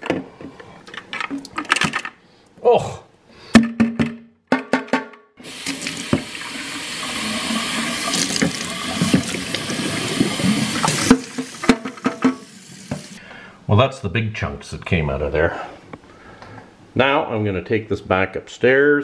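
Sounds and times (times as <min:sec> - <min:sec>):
tap running into steel sink: 0:08.0 - 0:09.6.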